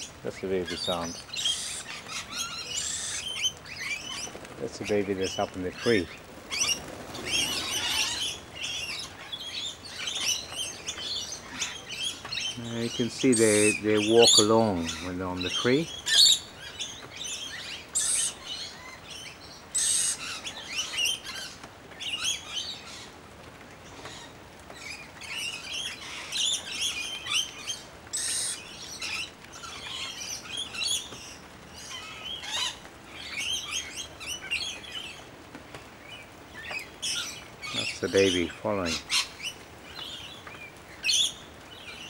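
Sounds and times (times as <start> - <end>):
lorikeets chattering: 0.0 - 21.5, 24.9 - 31.2, 36.1 - 40.4, 41.0 - 42.0
bird screeches: 0.8 - 4.3, 5.8 - 9.0.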